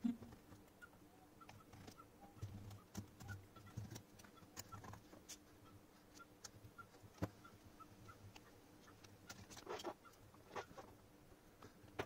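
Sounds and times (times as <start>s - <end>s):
faint clicks and taps: 6.1s - 7.4s.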